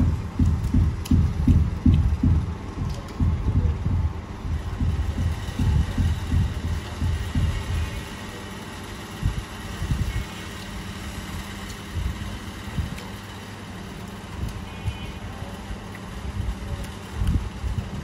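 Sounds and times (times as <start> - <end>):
dull low thumps: 0.0 - 8.1
steady background hum: 0.0 - 18.0.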